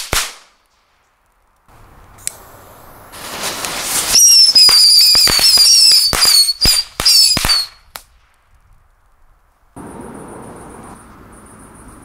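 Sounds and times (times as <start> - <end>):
firecrackers banging: 0.0 - 8.7, 9.8 - 11.3
firecracker whistle: 3.2 - 7.9.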